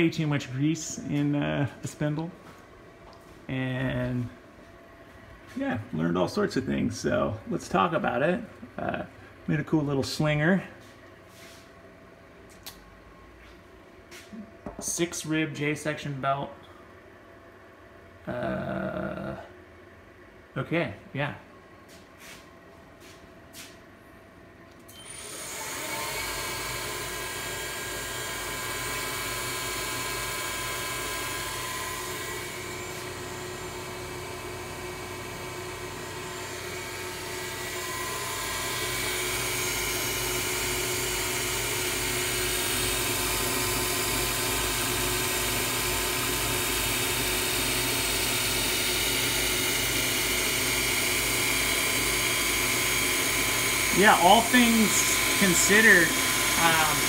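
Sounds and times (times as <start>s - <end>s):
mill spindle whining: 24.7s - 57.0s.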